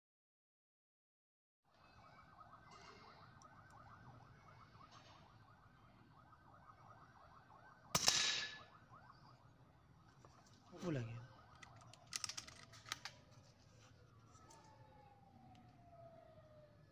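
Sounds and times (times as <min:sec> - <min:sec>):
air rifle shot: 0:08.0 - 0:08.6.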